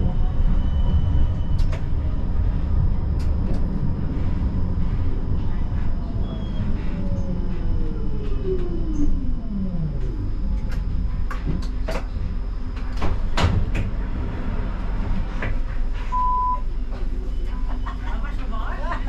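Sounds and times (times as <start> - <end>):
low rumble: 0.0 - 19.0
tram electric drive whining: 0.0 - 19.0
short beep: 16.1 - 16.7.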